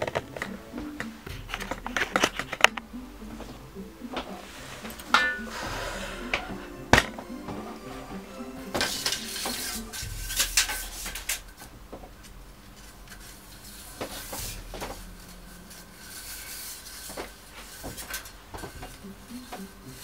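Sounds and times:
metal blind slats scraping: 0:04.4 - 0:20.0.

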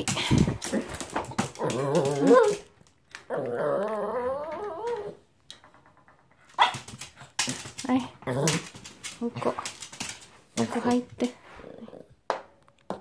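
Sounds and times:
dog whining: 0:01.6 - 0:05.2.

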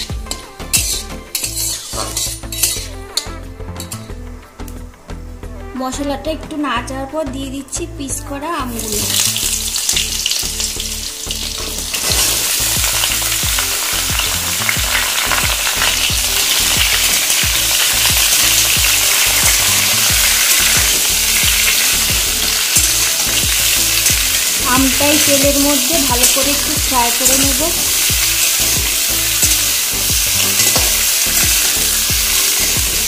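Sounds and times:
food sizzling in hot oil: 0:00.0 - 0:04.2, 0:08.6 - 0:33.0
spatula scraping pan: 0:00.3 - 0:04.1.

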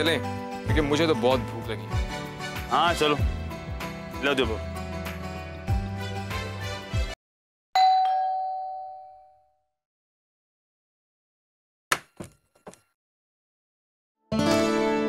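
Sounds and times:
doorbell chime: 0:07.8 - 0:09.5.

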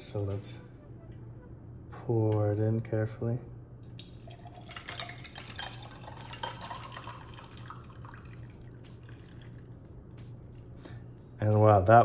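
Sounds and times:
coffee pouring and splashing: 0:03.8 - 0:09.9
ice clinking against glass: 0:04.0 - 0:08.3.

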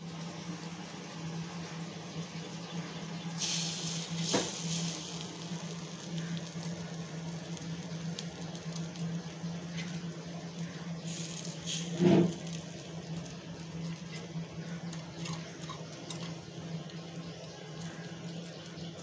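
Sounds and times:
batter sizzling in a pan: 0:00.1 - 0:19.0.

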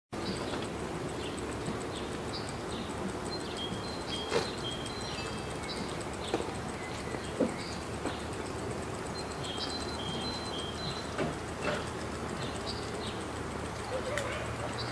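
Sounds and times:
steady background hiss: 0:00.2 - 0:14.9
distant songbirds whistling: 0:02.0 - 0:08.4, 0:09.0 - 0:11.2.

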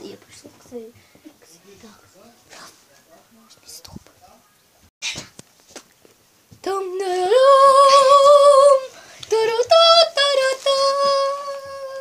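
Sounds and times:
girl singing long held notes: 0:06.6 - 0:12.0.

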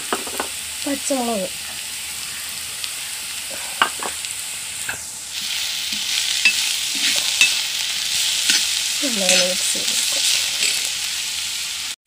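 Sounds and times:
onions sizzling in oil: 0:00.0 - 0:12.0
metal spoon clicking on pan: 0:06.4 - 0:06.6.

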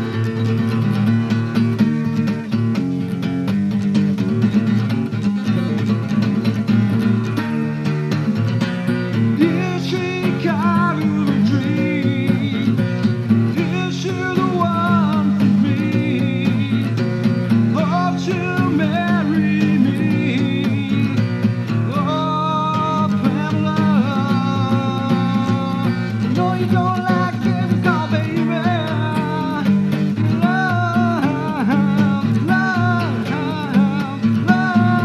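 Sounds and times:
acoustic guitar chords: 0:00.0 - 0:35.0
bending melody line: 0:18.4 - 0:35.0.

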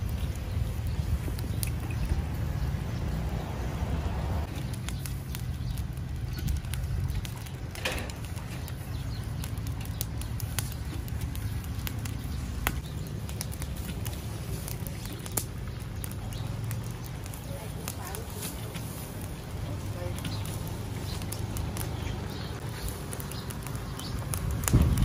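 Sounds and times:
sharp pops and ticks: 0:00.0 - 0:03.3, 0:04.4 - 0:25.0
charcoal grill crackling: 0:00.0 - 0:25.0
steady low rumble: 0:00.0 - 0:25.0.

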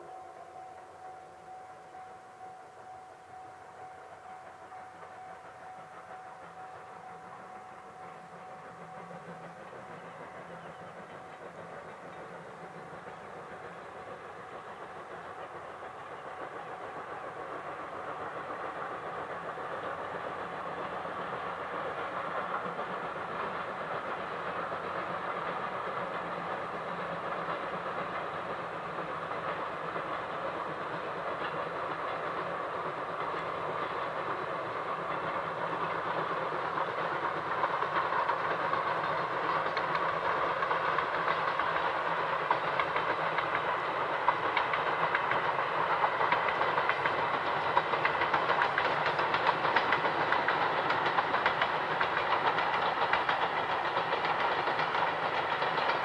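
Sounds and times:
steam locomotive running: 0:00.0 - 0:56.0.

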